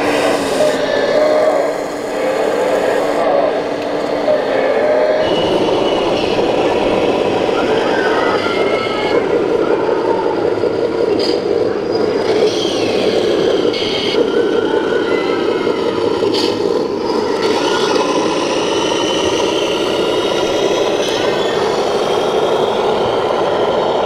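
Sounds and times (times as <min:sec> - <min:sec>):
simulated diesel engine through speaker: 0:00.0 - 0:24.0.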